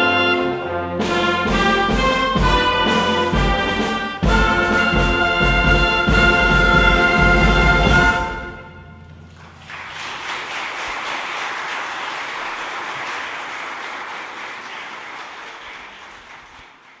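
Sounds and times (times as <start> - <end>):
wind band chord: 0.0 - 9.4
audience applauding: 9.1 - 17.0.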